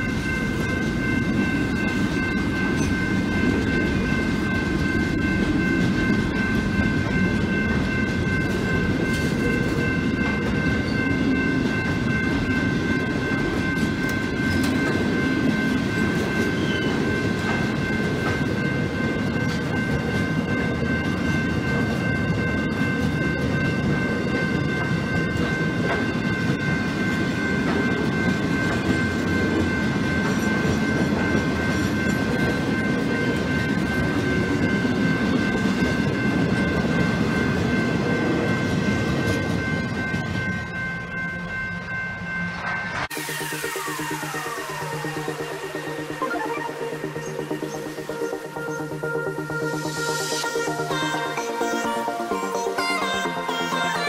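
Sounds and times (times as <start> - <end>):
train wheels rumbling on rail: 0.0 - 46.1
high whine: 42.5 - 53.6.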